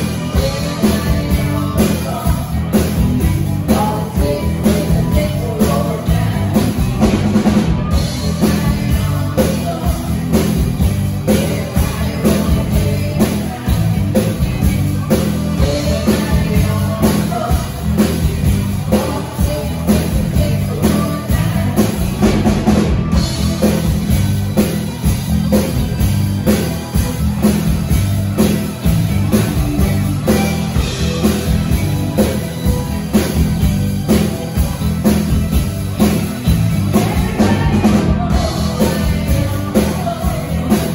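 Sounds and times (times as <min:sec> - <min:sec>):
drum kit beat: 0:00.0 - 0:40.9
electric guitar: 0:00.0 - 0:40.9
heavy bass: 0:00.0 - 0:40.9
keyboards: 0:00.0 - 0:40.9.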